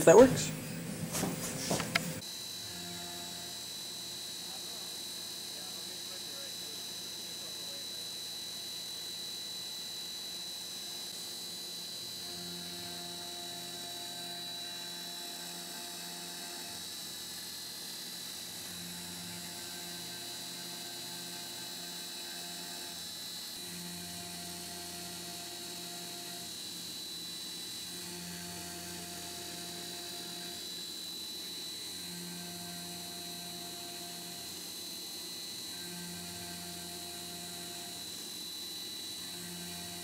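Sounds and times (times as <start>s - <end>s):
milling spindle high whine: 0.0s - 40.0s
endmill cutting aluminium: 11.1s - 40.0s.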